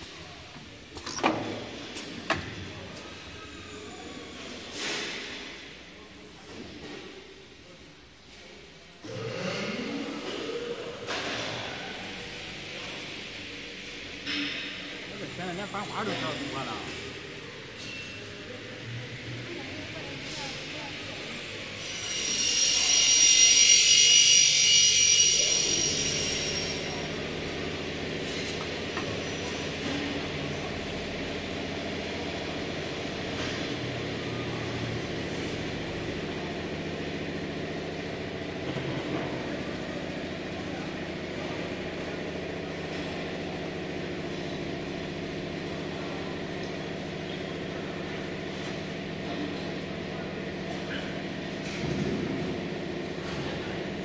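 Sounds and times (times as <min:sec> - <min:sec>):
pneumatic compressed air hiss: 0:21.7 - 0:27.0.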